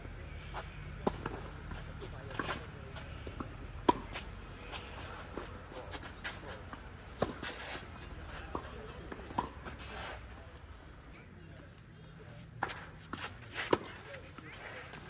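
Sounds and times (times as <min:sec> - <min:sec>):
tennis ball struck by racket: 0:03.8 - 0:04.8, 0:07.1 - 0:07.7.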